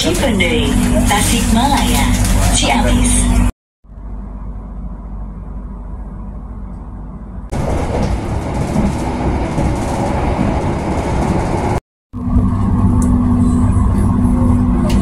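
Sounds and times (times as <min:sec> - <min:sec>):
constant low hum: 0:00.0 - 0:08.8, 0:12.2 - 0:15.0
train running noise: 0:00.0 - 0:15.0.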